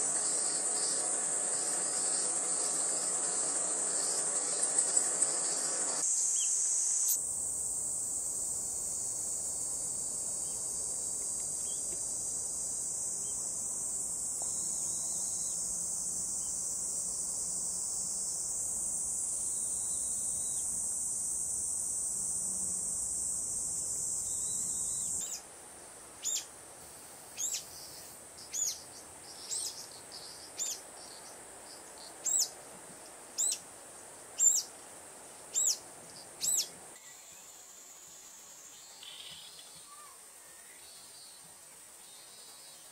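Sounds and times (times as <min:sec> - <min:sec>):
insect buzzing: 0:00.0 - 0:42.9.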